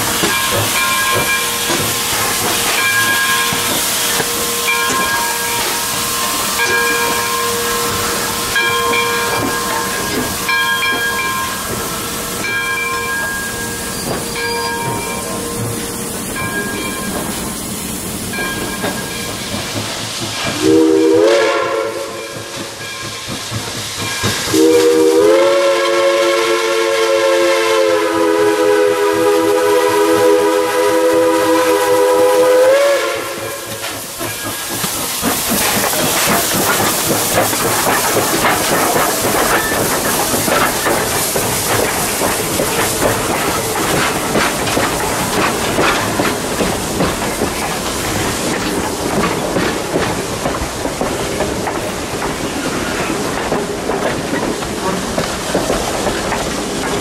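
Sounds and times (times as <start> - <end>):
steam locomotive whistle: 0.0 - 16.9, 20.5 - 22.8, 24.5 - 34.1
train rushing noise: 0.0 - 57.0
wheels clattering over rail joints: 33.7 - 57.0.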